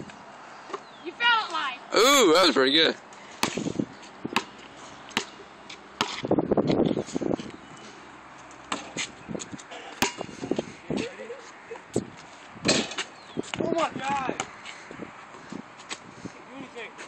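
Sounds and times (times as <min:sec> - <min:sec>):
basketball bouncing on asphalt: 0:03.4 - 0:07.6, 0:08.3 - 0:11.1, 0:12.0 - 0:16.0.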